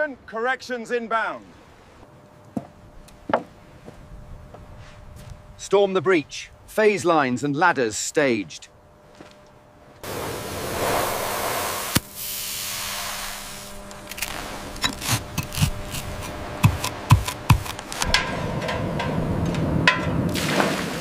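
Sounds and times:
low rumble with hiss: 0:00.0 - 0:21.0
burning fuse hissing: 0:10.0 - 0:18.0.

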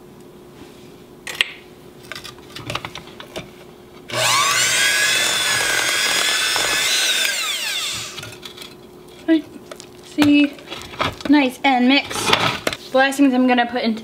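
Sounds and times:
electric hand mixer whining: 0:04.1 - 0:08.4.

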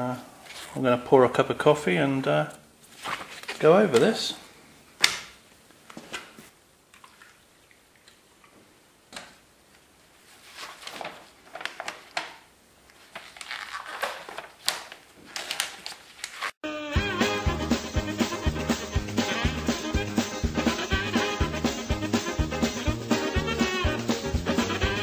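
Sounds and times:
paper pages rustling: 0:02.8 - 0:04.1, 0:10.2 - 0:16.6
swing music: 0:16.6 - 0:25.0.

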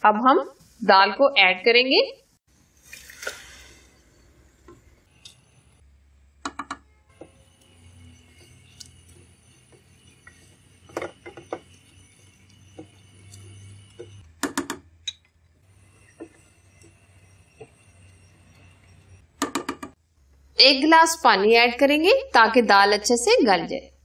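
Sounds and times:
spatula stirring food in a pot: 0:07.1 - 0:14.2.

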